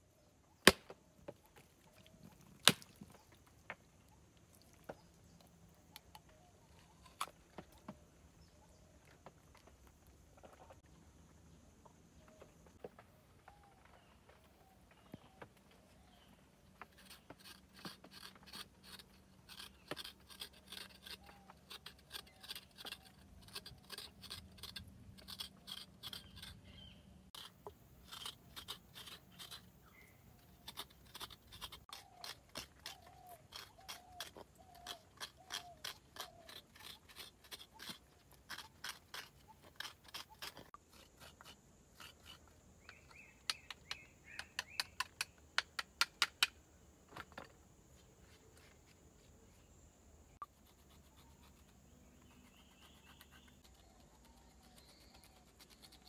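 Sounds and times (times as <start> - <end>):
coconut flesh being scraped: 16.8 - 45.0, 50.4 - 56.0.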